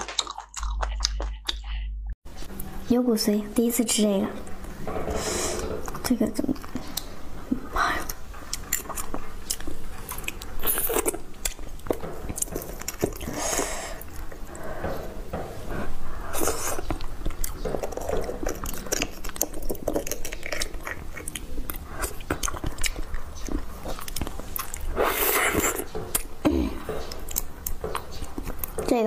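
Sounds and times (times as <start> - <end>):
wet chewing and mouth smacks: 0.0 - 1.8, 6.6 - 14.7, 16.2 - 28.9
slurping from metal spoon: 24.4 - 25.9.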